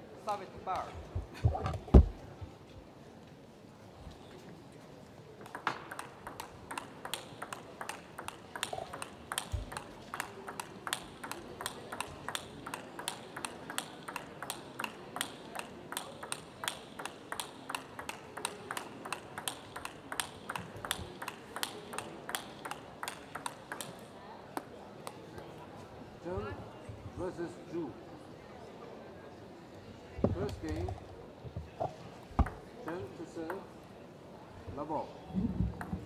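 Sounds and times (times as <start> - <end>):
table tennis ball clicking: 5.4 - 24.0, 32.4 - 33.6.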